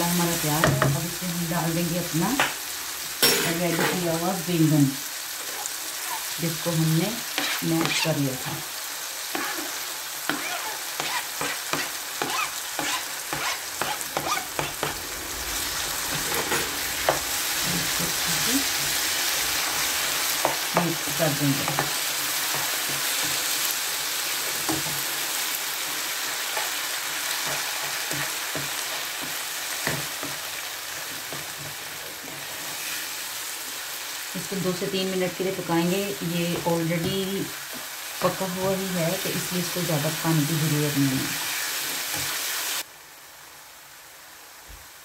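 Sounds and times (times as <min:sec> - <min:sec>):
food sizzling in a pan: 0:00.0 - 0:45.0
spatula scraping and tapping pan: 0:07.3 - 0:08.0, 0:10.3 - 0:15.0, 0:20.4 - 0:21.0, 0:21.6 - 0:23.5, 0:26.5 - 0:32.8.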